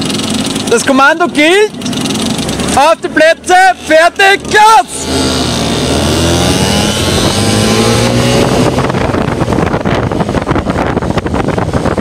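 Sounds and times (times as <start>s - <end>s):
moped engine revving: 0.0s - 12.0s
wind buffeting microphone: 5.0s - 12.0s.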